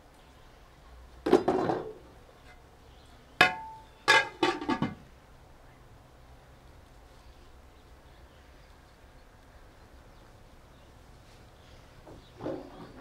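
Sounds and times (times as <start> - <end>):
lid clanging on pot: 3.4 - 5.0.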